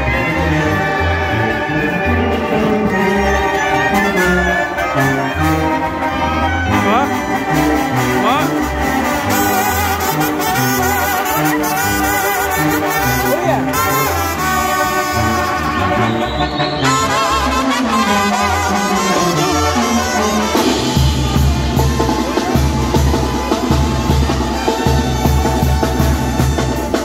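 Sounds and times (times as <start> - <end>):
brass band playing dance tune: 0.0 - 27.0
bass drum and cymbals: 19.5 - 27.0.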